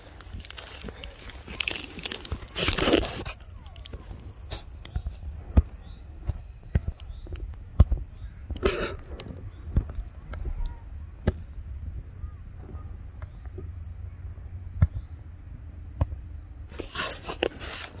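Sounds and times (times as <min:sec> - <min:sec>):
rustling grass: 0:00.0 - 0:06.5, 0:16.7 - 0:18.0.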